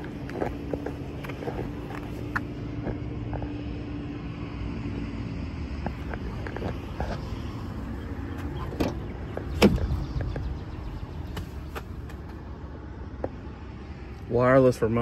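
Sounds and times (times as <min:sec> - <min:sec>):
steady low rumble: 0:00.0 - 0:15.0
truck door clunk: 0:08.4 - 0:10.4.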